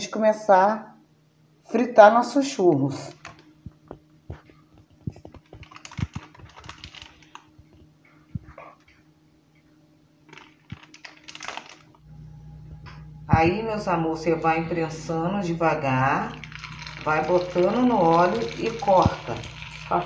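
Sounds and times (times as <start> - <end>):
plastic bag crinkling: 3.1 - 3.5, 4.4 - 7.8, 10.3 - 12.0, 16.3 - 20.0.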